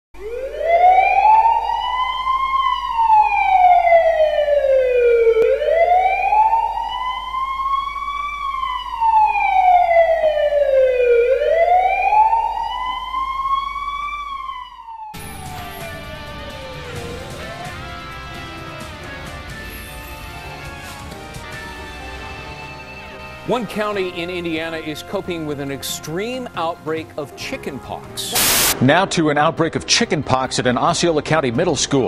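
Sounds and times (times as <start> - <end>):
fire engine siren wailing: 0.2 - 26.9, 28.3 - 28.8
news music opener: 15.2 - 27.2, 28.2 - 30.8.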